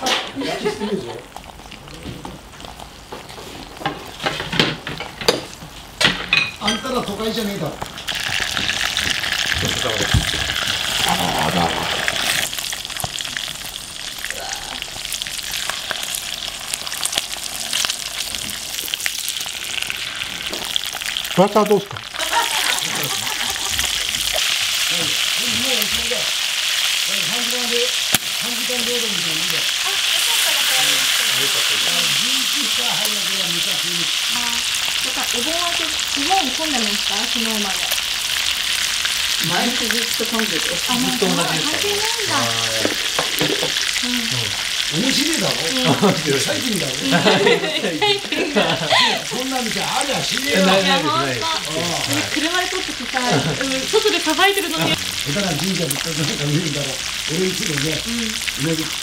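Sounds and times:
oil sizzling in skillet: 0:00.0 - 0:59.0
small crackling pops: 0:12.2 - 0:13.3, 0:28.0 - 0:28.5.

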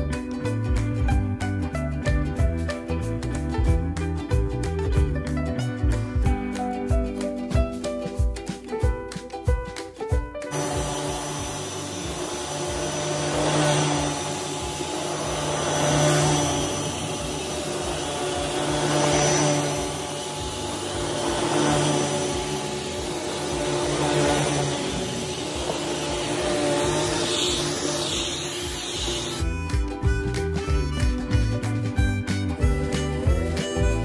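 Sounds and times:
vacuum cleaner on carpet: 0:10.5 - 0:29.5.

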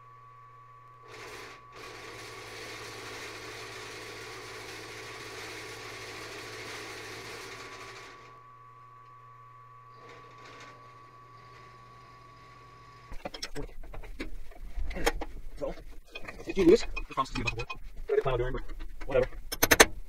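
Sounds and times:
milling machine motor whine: 0:00.0 - 0:14.2.

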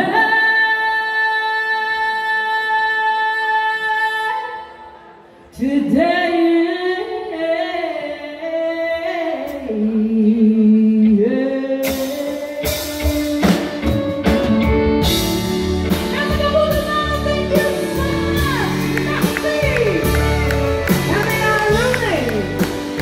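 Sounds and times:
woman singing country ballad: 0:05.6 - 0:13.1, 0:15.8 - 0:23.0
band with drums and cymbals: 0:11.8 - 0:23.0.

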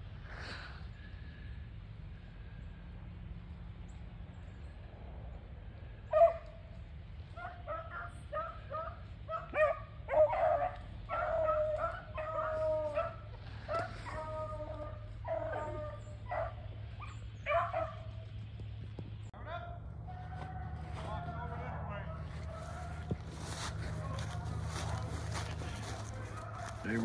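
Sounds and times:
hounds baying: 0:05.7 - 0:18.5, 0:19.3 - 0:27.0
loud dog bark: 0:06.1 - 0:06.6, 0:07.4 - 0:18.1, 0:25.7 - 0:27.0.

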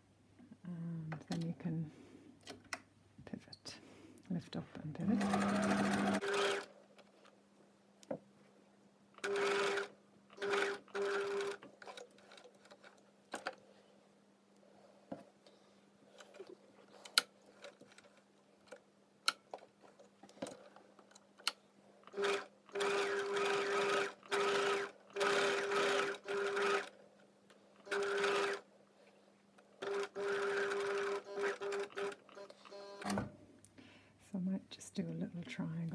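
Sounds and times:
sewing machine stitching: 0:05.0 - 0:06.7, 0:09.2 - 0:13.5, 0:22.1 - 0:26.9, 0:27.8 - 0:28.7, 0:29.8 - 0:33.2.

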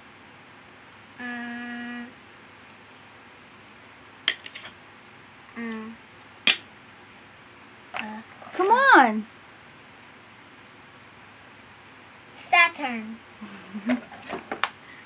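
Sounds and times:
child humming: 0:01.2 - 0:02.1.

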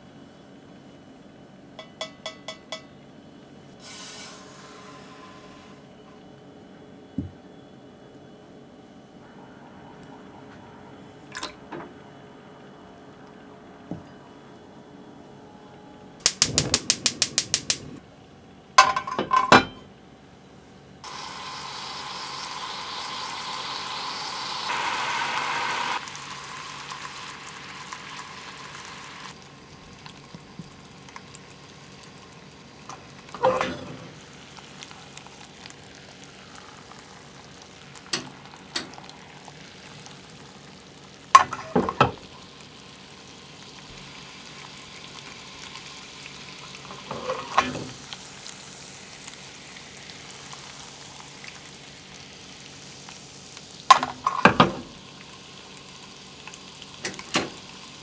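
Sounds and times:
caramel bubbling and hissing: 0:03.6 - 0:06.0, 0:20.8 - 0:58.0
gas stove igniter clicks: 0:16.2 - 0:17.8.

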